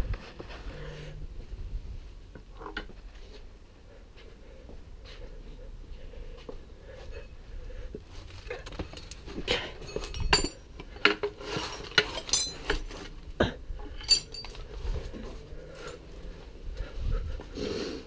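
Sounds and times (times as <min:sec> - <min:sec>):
metal hand tools clinking: 0:08.9 - 0:12.9, 0:14.0 - 0:14.7.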